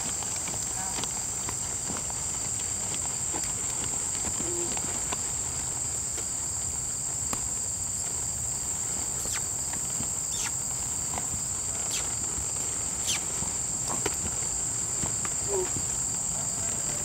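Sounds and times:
horse hoofbeats on dirt: 0:00.0 - 0:17.0
insects chorus: 0:00.0 - 0:17.0
short falling chirps: 0:09.2 - 0:09.5, 0:10.3 - 0:10.6, 0:11.9 - 0:12.1, 0:13.0 - 0:13.2.

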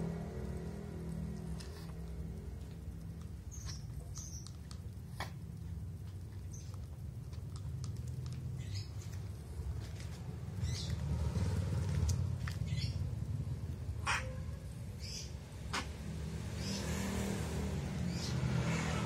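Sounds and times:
steady low hum: 0:00.0 - 0:18.4
kittens crunching dry kibble: 0:04.4 - 0:10.2.

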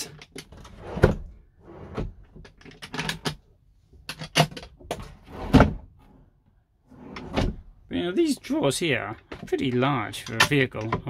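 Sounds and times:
drawers clicking and knocking: 0:00.0 - 0:03.4, 0:04.0 - 0:06.0, 0:07.0 - 0:07.7, 0:09.2 - 0:11.0.

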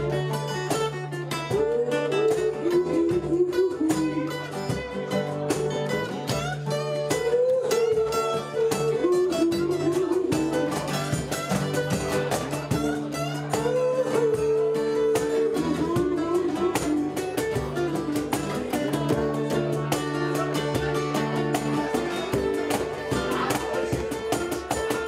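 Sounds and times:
acoustic guitars strumming: 0:00.0 - 0:25.0
man yodel singing: 0:01.5 - 0:04.6, 0:06.4 - 0:11.0, 0:12.8 - 0:19.4.

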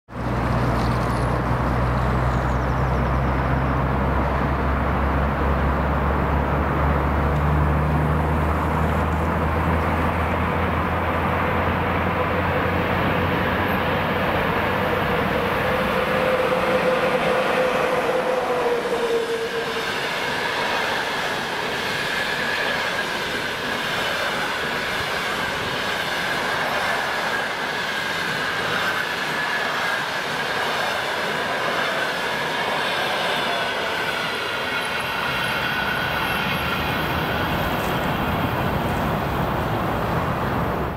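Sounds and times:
train wheel squeal: 0:12.2 - 0:39.4.

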